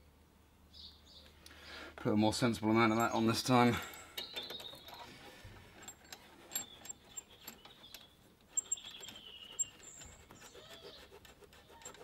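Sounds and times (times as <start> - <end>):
sharp metallic clicks: 2.9 - 5.1.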